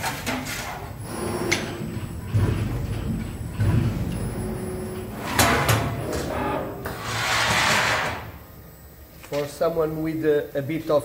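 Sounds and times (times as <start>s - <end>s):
machine rumble: 0.1s - 9.2s
machine mechanical thuds: 1.0s - 8.4s.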